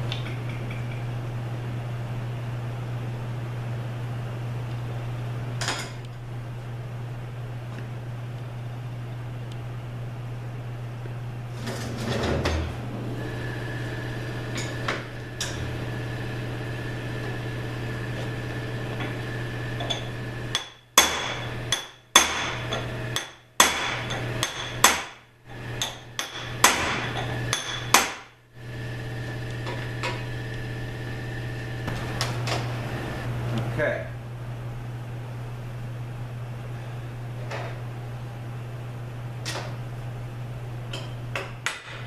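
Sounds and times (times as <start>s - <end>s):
steady low hum: 0.0s - 42.0s
hammer striking metal: 19.8s - 25.2s, 25.8s - 28.3s.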